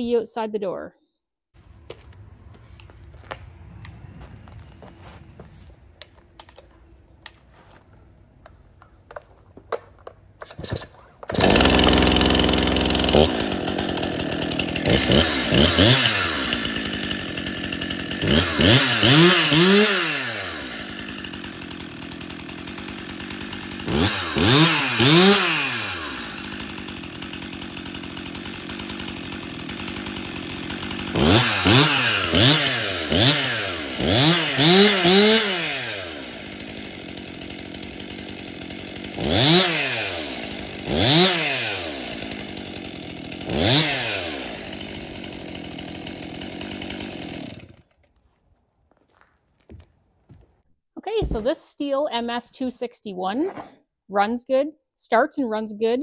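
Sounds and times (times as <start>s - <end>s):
chainsaw idling and revving: 10.7s - 48.0s.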